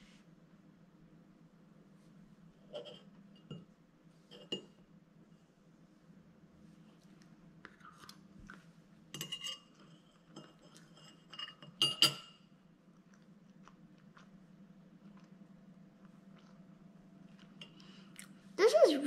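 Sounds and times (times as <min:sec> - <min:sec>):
low steady hum: 0:00.0 - 0:19.0
fork clinking on a plate: 0:09.2 - 0:12.4.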